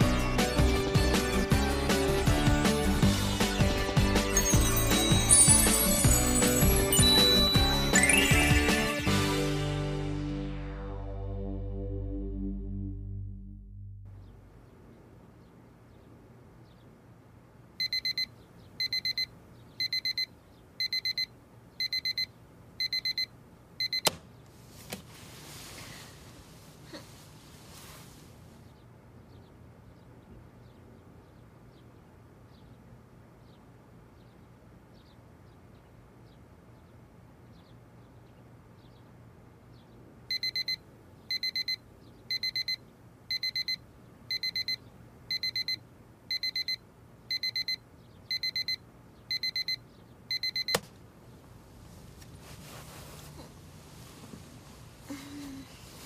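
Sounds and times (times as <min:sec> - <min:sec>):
electronic alarm beeping: 0:17.8 - 0:24.1, 0:40.3 - 0:50.8
rustling: 0:24.5 - 0:28.7, 0:51.7 - 0:56.0.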